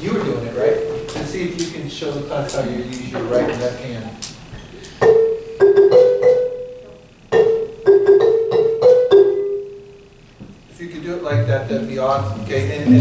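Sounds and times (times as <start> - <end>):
marimba notes: 5.0 - 10.0.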